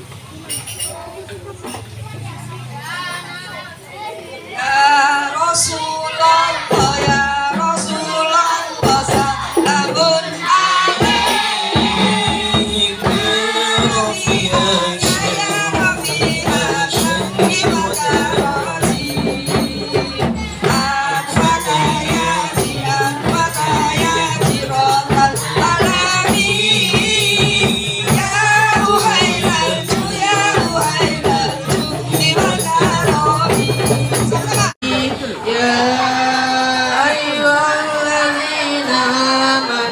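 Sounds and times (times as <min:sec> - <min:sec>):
frame drums with jingles: 0:00.0 - 0:03.6, 0:05.5 - 0:36.3
voices singing: 0:00.9 - 0:39.9
large drum beating: 0:06.7 - 0:08.2, 0:08.8 - 0:35.1.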